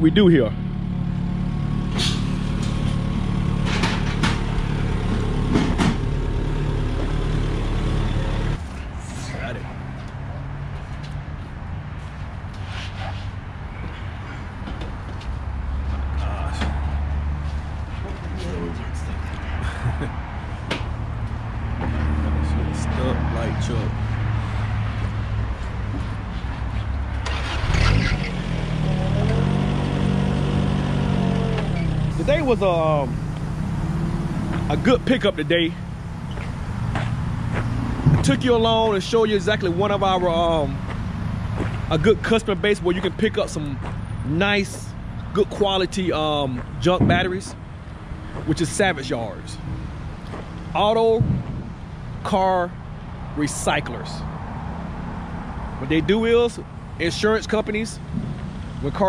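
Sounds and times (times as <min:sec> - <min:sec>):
forklift engine running: 0:00.6 - 0:08.6.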